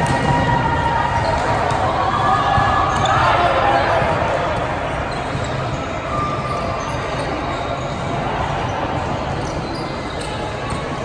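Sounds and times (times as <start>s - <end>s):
volleyballs struck and bouncing: 0.0s - 8.2s.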